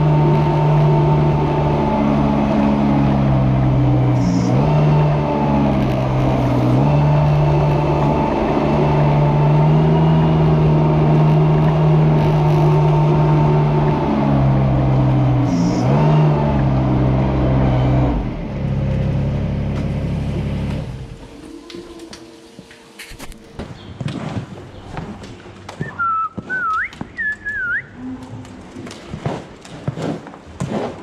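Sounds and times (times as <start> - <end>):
vehicle engine running under load: 0.0 - 23.8
blade scraping slatted floor: 28.8 - 31.0.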